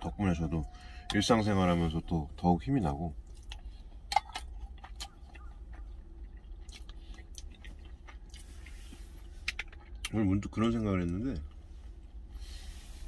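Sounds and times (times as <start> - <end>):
low steady hum: 0.0 - 13.0
man chewing: 3.2 - 10.2.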